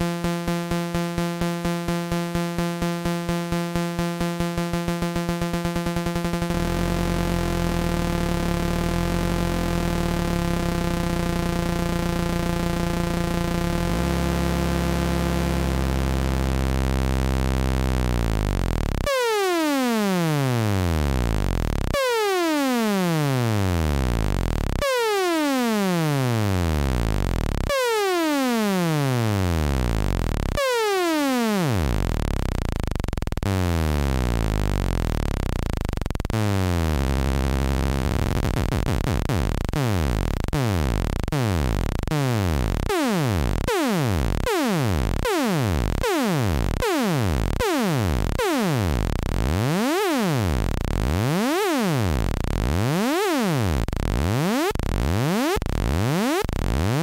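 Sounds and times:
synthesizer tone sweeping pitch: 0:06.0 - 0:16.4.

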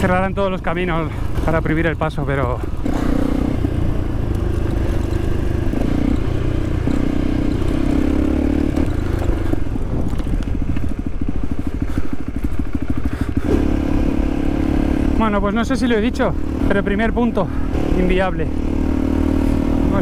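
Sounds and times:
motorcycle engine running: 0:00.0 - 0:20.0
clatter and scraping of bike: 0:01.0 - 0:08.0, 0:08.7 - 0:13.7.

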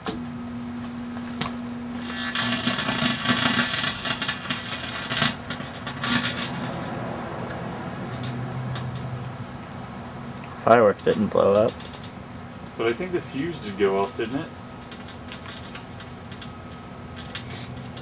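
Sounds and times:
microwave oven humming: 0:00.0 - 0:18.0
battery crackling and hissing: 0:02.0 - 0:06.9, 0:12.8 - 0:18.0.

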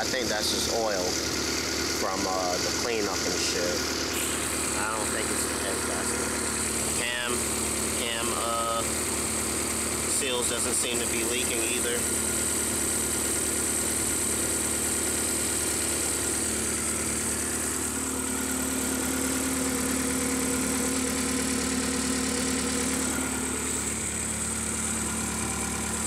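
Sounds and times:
car engine idling: 0:00.0 - 0:26.0
high whine: 0:04.0 - 0:07.6.

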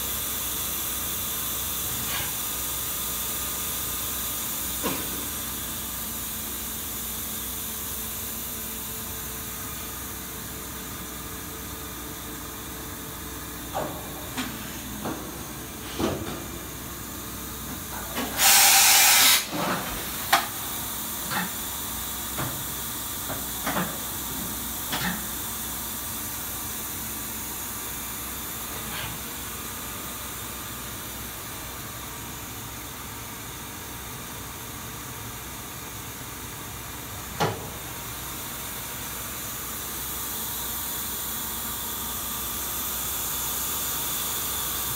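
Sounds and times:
loud hissing burst: 0:18.4 - 0:19.5
machining center hissing: 0:18.4 - 0:19.5.

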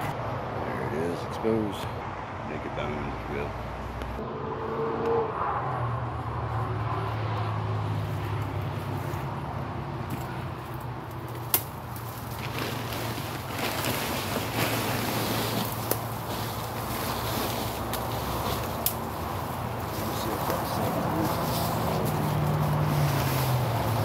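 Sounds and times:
tarp and brush rustling: 0:11.4 - 0:24.0.

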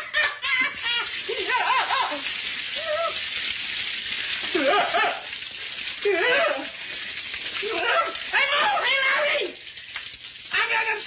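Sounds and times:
water spraying with hiss: 0:00.7 - 0:11.0
man yelping and whooping: 0:04.7 - 0:05.3.

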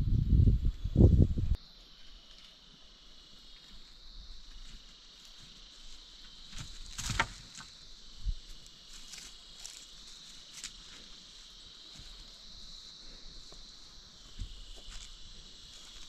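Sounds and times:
high-pitched insect chorus: 0:00.0 - 0:16.0.

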